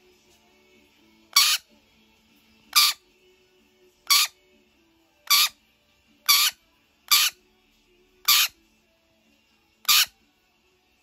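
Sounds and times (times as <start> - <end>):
faint background music: 0.0 - 11.0
parrot shrieking: 1.3 - 1.7, 2.7 - 3.0, 4.0 - 4.4, 5.2 - 5.6, 6.2 - 7.4, 8.2 - 8.6, 9.8 - 10.2.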